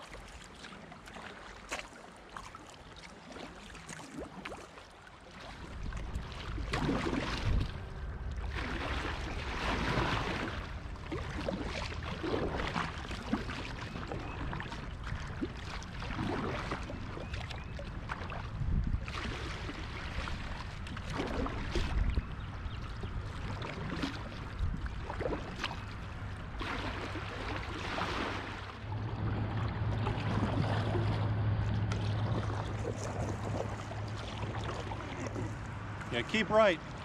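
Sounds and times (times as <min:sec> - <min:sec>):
paddle splashing and dripping: 0:00.0 - 0:37.0
wash of moving water: 0:00.0 - 0:37.0
low rumble: 0:28.6 - 0:37.0.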